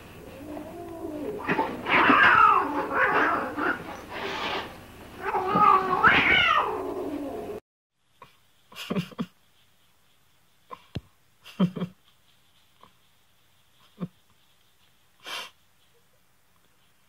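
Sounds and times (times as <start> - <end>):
cat yowling: 0.4 - 4.0, 5.2 - 7.6.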